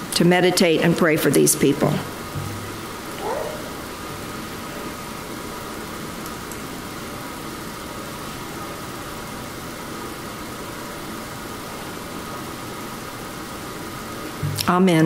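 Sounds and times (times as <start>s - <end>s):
faint hum: 1.3s - 5.9s.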